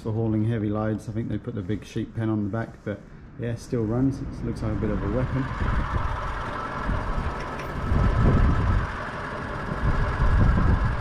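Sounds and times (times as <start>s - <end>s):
car engine running: 4.6s - 11.0s.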